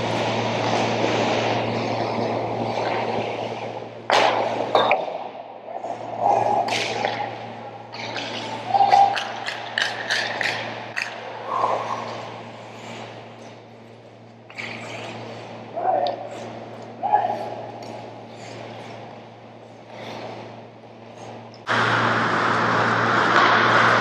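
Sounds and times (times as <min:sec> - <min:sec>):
skates scraping ice: 0:00.0 - 0:05.1, 0:05.7 - 0:20.5
steady low hum: 0:00.0 - 0:24.0
stick and puck clacks: 0:01.5 - 0:05.3, 0:06.5 - 0:12.3.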